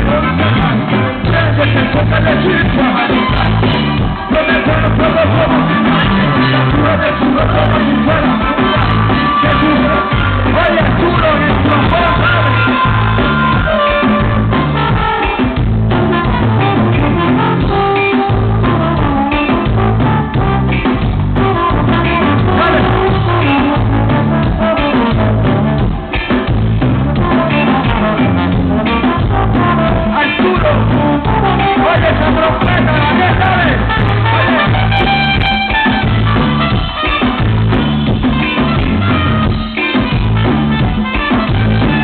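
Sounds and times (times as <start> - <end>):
person singing: 0.0 - 15.6, 21.7 - 23.8
live latin band playing: 0.0 - 42.0.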